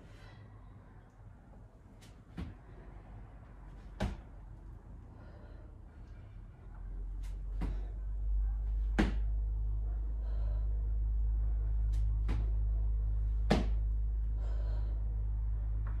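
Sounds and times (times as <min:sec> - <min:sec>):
steady low rumble: 0:00.0 - 0:16.0
hands and feet landing on mat: 0:04.0 - 0:04.2, 0:08.9 - 0:09.3, 0:13.4 - 0:13.8.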